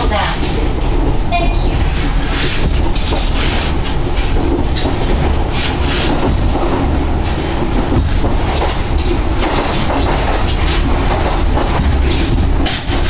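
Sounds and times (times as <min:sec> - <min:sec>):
clattering knocks: 0:00.0 - 0:13.0
train wheels rumbling on rail: 0:00.0 - 0:13.0.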